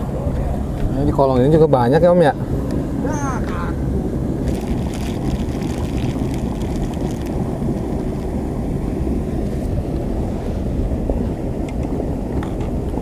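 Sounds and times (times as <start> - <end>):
wind buffeting microphone: 0.0 - 13.0
plastic bag crinkling: 4.4 - 8.3.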